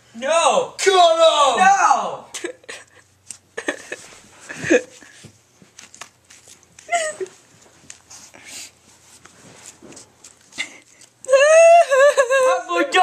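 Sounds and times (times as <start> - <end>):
distressed vocal cries: 6.9 - 7.4, 11.2 - 13.0.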